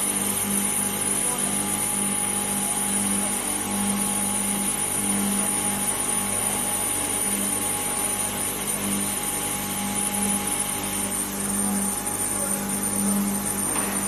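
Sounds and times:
pulsing low machinery hum: 0:00.0 - 0:14.0.

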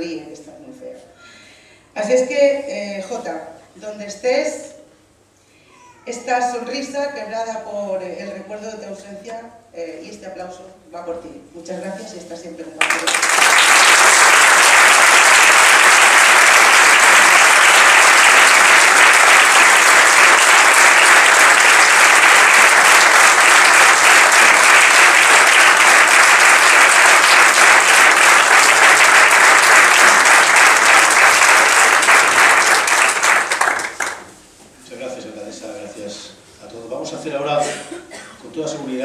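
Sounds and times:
audience applauding: 0:12.8 - 0:34.4.

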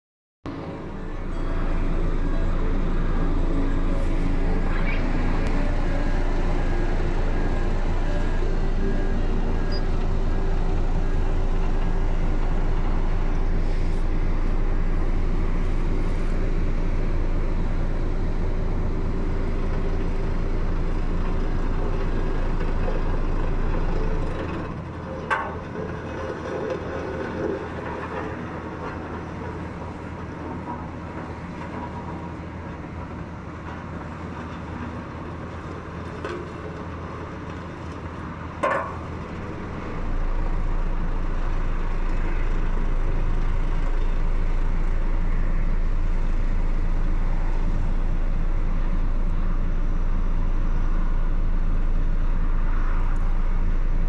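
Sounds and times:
roller drum vibrating hum: 0:00.5 - 0:26.5, 0:38.5 - 0:54.0
diesel engine running: 0:00.5 - 0:54.0.

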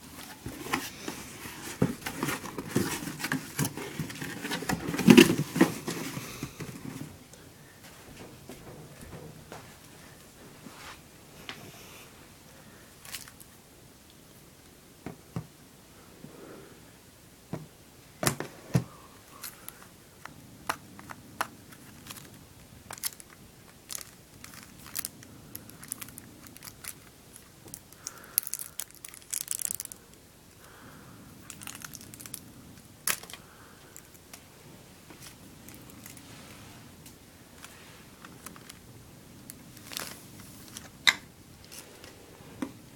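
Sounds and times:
plastic packaging crinkling: 0:21.7 - 0:30.2, 0:31.4 - 0:32.4, 0:33.0 - 0:34.4, 0:39.4 - 0:41.0.

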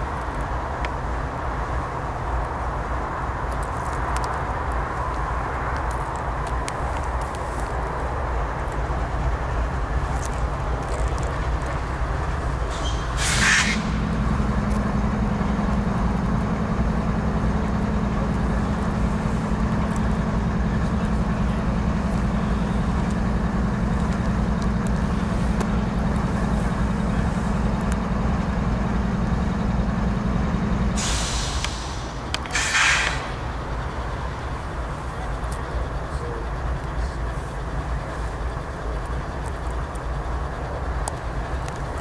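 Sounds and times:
diesel locomotive rumbling: 0:00.0 - 0:42.0
steady low hum: 0:00.0 - 0:42.0
short hiss: 0:12.7 - 0:14.0, 0:31.0 - 0:33.4.

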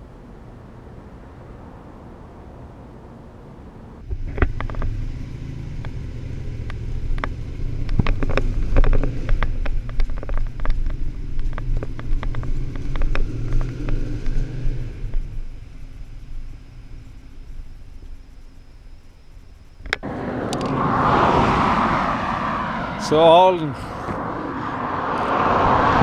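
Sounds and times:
motorcycle engine rumbling: 0:03.7 - 0:21.0.

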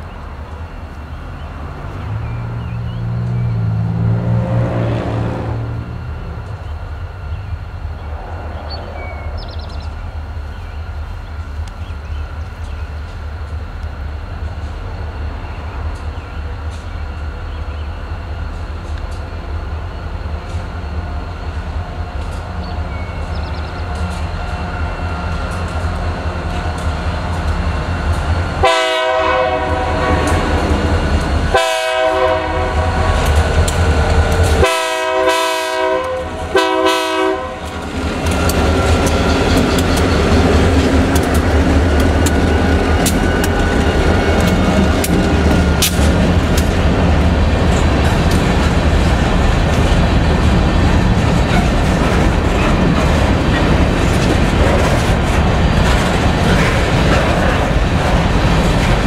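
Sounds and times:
diesel locomotive engines rumbling: 0:00.0 - 0:59.0
locomotive air horn blasts: 0:28.6 - 0:30.6, 0:31.5 - 0:33.3, 0:34.5 - 0:37.8.

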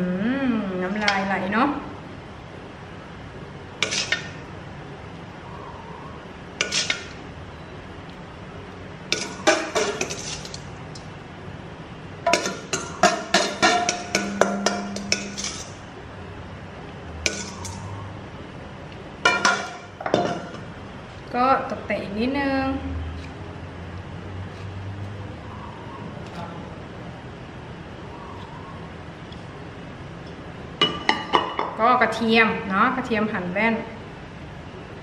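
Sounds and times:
spoon clinking on china plate: 0:12.3 - 0:15.7.

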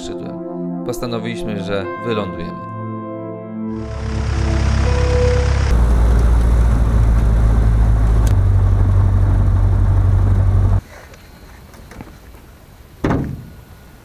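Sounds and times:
outdoor background: 0:03.7 - 0:14.0
airplane engine and propeller drone: 0:03.8 - 0:10.8.

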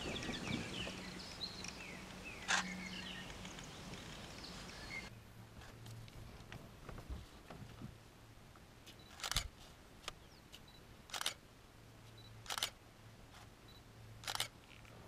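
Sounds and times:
camera autofocus beep: 0:09.0 - 0:09.5, 0:12.2 - 0:12.8, 0:13.7 - 0:14.5
camera shutter firing: 0:09.1 - 0:09.5, 0:11.1 - 0:11.4, 0:12.4 - 0:12.8, 0:14.2 - 0:14.5.

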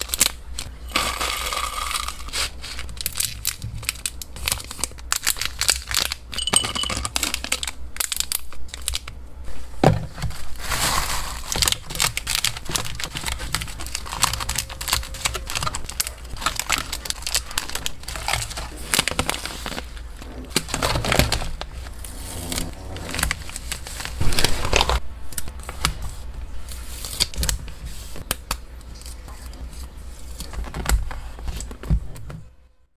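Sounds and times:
plastic bags crinkling: 0:00.0 - 0:09.1, 0:10.2 - 0:25.0.

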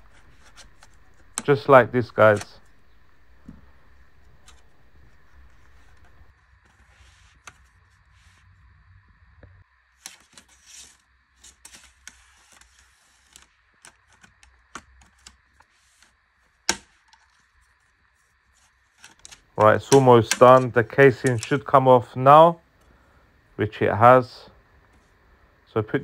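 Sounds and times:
pry tool scraping: 0:00.0 - 0:06.3.

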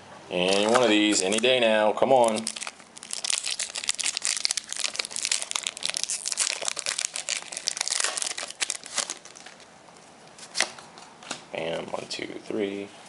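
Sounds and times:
foil wrapper crinkling: 0:00.4 - 0:09.7.

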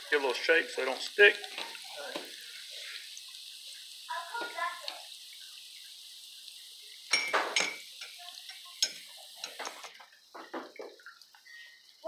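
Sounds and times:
hot oil sizzling: 0:00.0 - 0:12.0
metal scoop clinking on glass: 0:07.1 - 0:08.2.

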